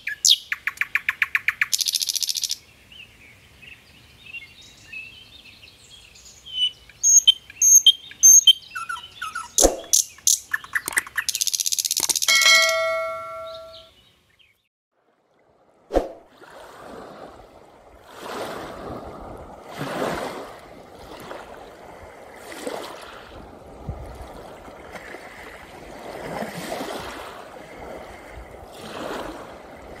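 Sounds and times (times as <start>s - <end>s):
waves washing onto pebble beach: 18.0s - 30.0s.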